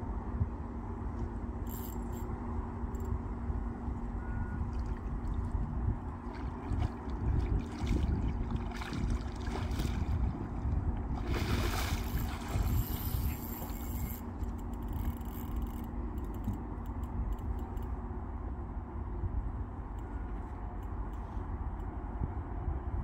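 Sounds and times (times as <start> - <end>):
steady low rumble: 0.0 - 23.0
fish splashing at water surface: 6.4 - 12.9.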